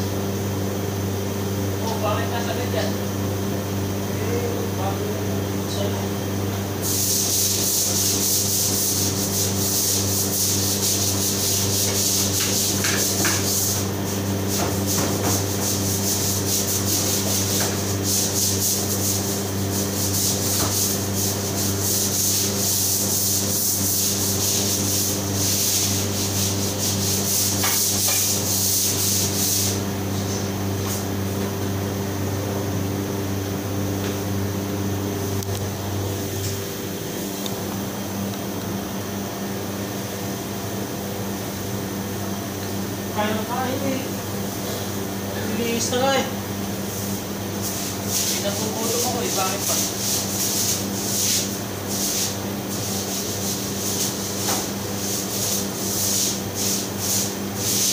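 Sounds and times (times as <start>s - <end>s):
low machinery hum: 0.0s - 57.9s
floor tool scrubbing tiles: 6.9s - 30.3s, 47.0s - 57.9s.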